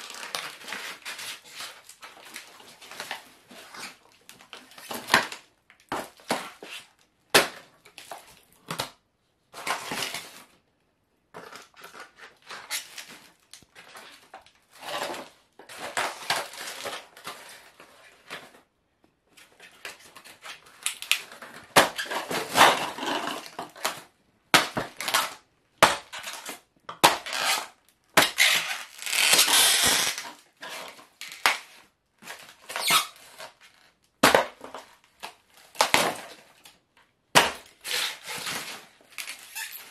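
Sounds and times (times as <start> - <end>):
foam and plastic crunching underfoot: 19.6 - 36.7.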